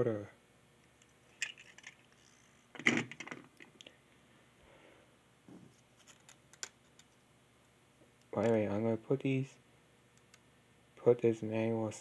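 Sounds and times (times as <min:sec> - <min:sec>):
plastic toy pieces clattering: 0:01.3 - 0:03.5.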